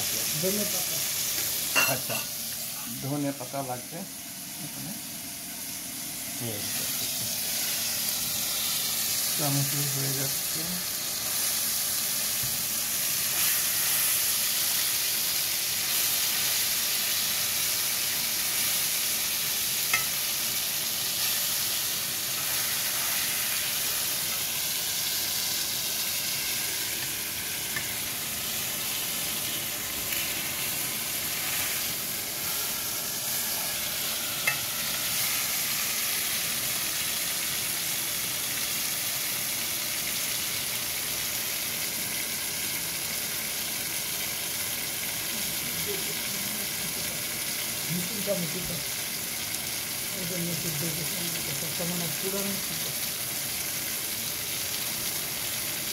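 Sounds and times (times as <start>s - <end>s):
tomatoes sizzling in hot oil: 0.0s - 55.9s.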